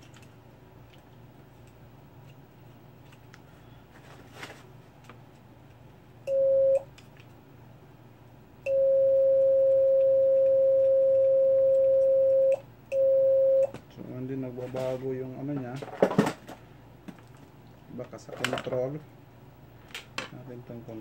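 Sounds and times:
megaphone steady tone: 0:08.7 - 0:13.7.

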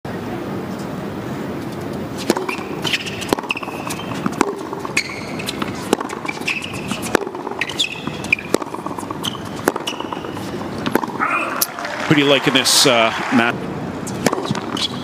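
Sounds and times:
racket striking ball: 0:02.2 - 0:12.5, 0:14.1 - 0:15.0
shoe squeaks on court: 0:02.5 - 0:04.3, 0:04.9 - 0:10.6, 0:14.1 - 0:15.0.

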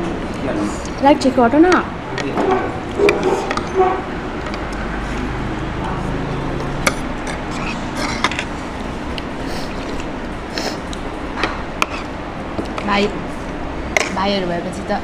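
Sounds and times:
steady background rumble: 0:00.0 - 0:15.0
cutlery clicking on plastic bowls: 0:01.7 - 0:03.8
eating sounds: 0:02.1 - 0:12.8.

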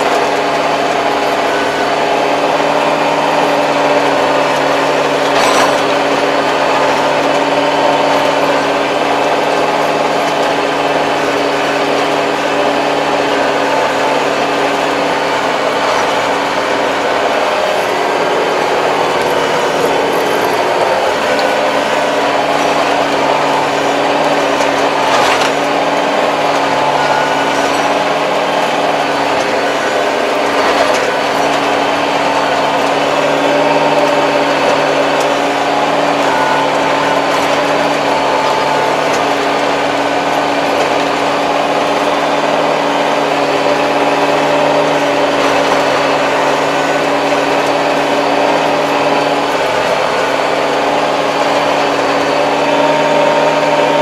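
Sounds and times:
tractor diesel engine droning: 0:00.0 - 0:54.0.

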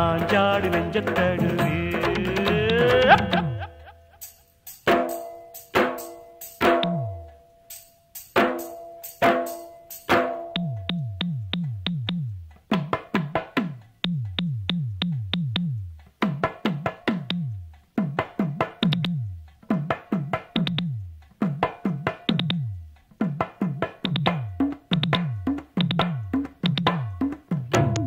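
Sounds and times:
pitch-bending drum runs: 0:24.1 - 0:28.0.

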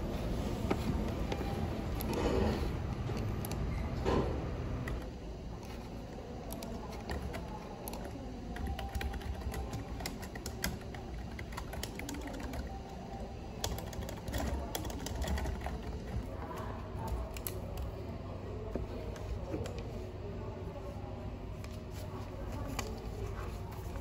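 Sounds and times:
computer keyboard typing: 0:02.9 - 0:03.8, 0:06.4 - 0:18.0.

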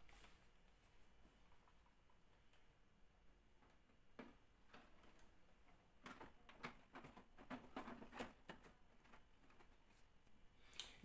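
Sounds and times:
faint plastic clicks: 0:03.6 - 0:11.0.

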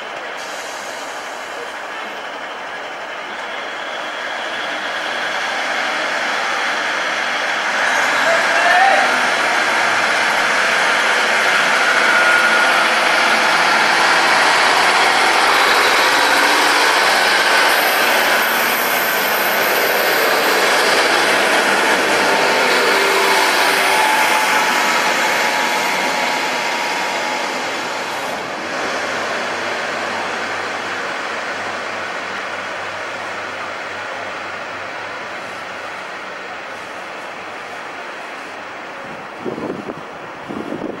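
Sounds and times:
diesel train engine rumble: 0:00.0 - 0:41.0
train wheels on rails: 0:00.0 - 0:41.0.

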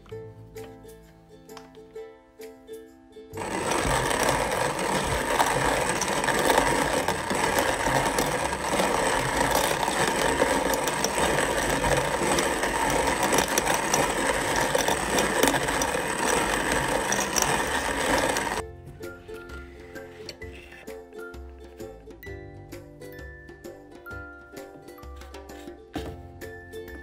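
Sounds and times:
hand coffee mill grinding beans: 0:03.4 - 0:18.6.

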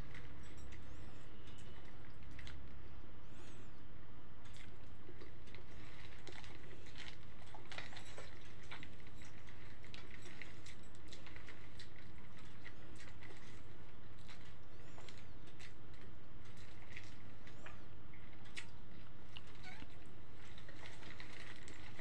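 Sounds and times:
steady low hum: 0:00.0 - 0:22.0
person chewing food: 0:04.4 - 0:22.0.

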